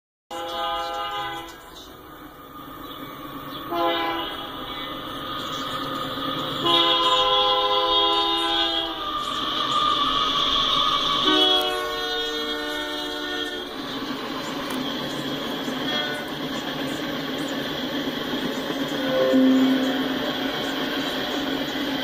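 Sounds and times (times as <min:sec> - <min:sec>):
locomotive air horn: 0:00.3 - 0:01.5, 0:03.7 - 0:04.5, 0:06.6 - 0:09.0, 0:11.2 - 0:13.7
train rumble: 0:00.5 - 0:22.0.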